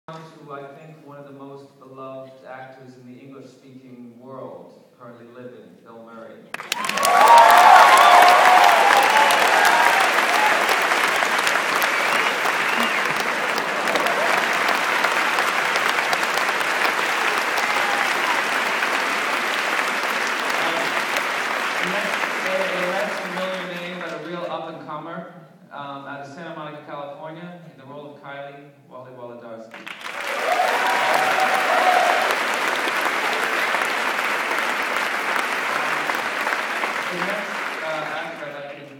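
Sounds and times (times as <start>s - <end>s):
audience applauding: 6.5s - 24.5s, 29.7s - 38.9s.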